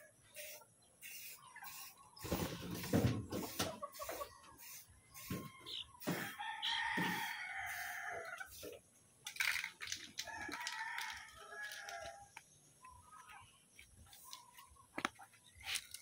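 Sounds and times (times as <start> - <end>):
rooster crowing: 5.6 - 8.4, 10.2 - 12.3.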